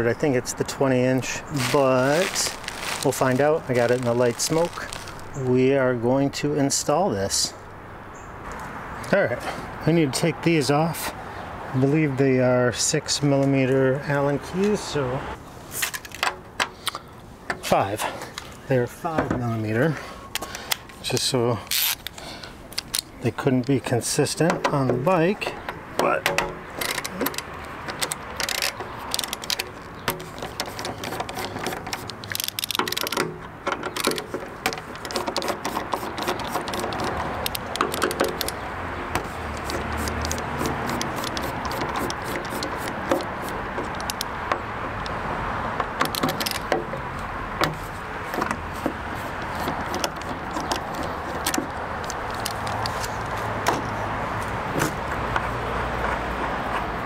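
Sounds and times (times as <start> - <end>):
outdoor background hum: 0.0 - 57.0
screwdriver clicks and bolts rattling: 26.3 - 38.6, 39.5 - 44.3, 45.9 - 46.8, 49.4 - 53.2.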